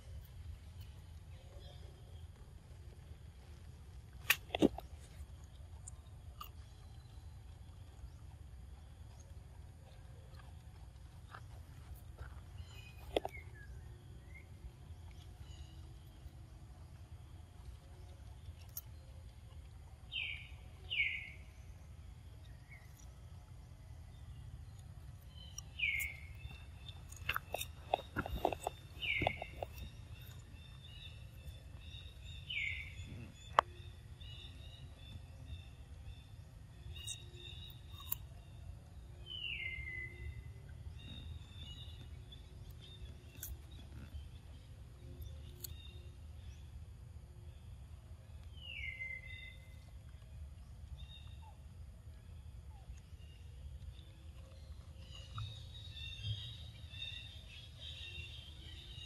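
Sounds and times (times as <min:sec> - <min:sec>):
low outdoor rumble: 0:00.0 - 0:59.0
macaque chewing cucumber: 0:04.0 - 0:16.3, 0:24.8 - 0:34.0.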